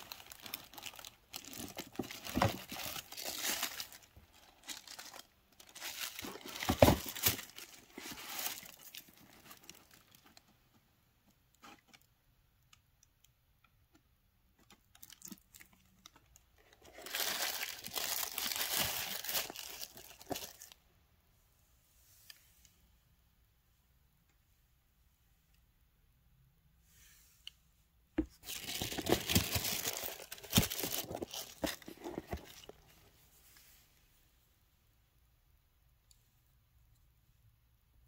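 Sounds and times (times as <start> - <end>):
packaging rustling and crinkling: 0.0 - 10.5, 14.6 - 20.8, 28.3 - 33.0.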